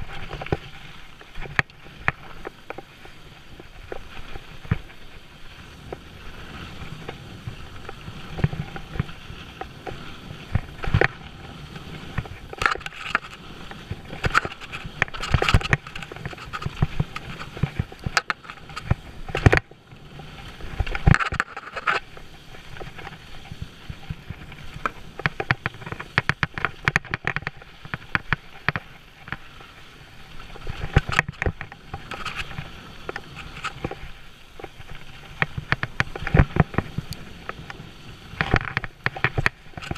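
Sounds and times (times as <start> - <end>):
bike knocking and rattling: 0.0 - 39.9
bike tyres rumbling on dirt: 0.0 - 39.9.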